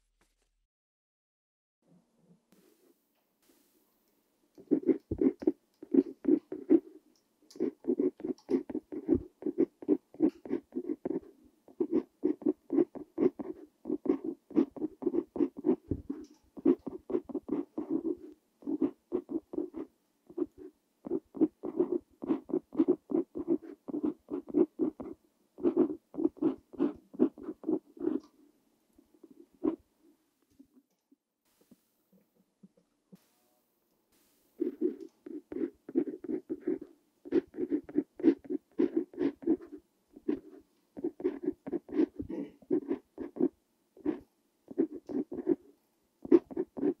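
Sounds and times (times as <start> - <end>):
pen nib scratching on paper: 4.6 - 28.3, 29.2 - 29.8, 34.6 - 45.6, 46.2 - 47.0.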